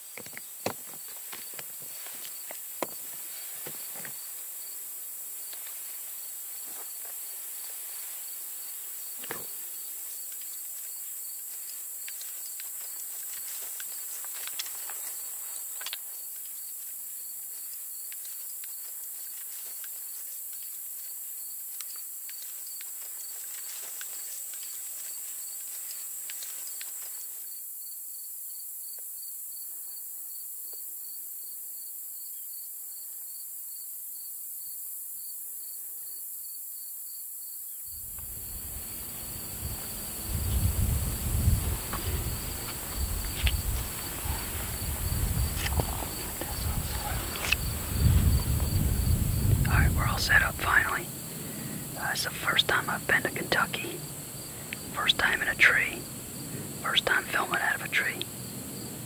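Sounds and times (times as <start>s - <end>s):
high-pitched insect chorus: 0.0s - 59.0s
footsteps in grass: 0.9s - 4.4s, 10.0s - 21.1s, 21.8s - 27.2s, 38.1s - 49.1s.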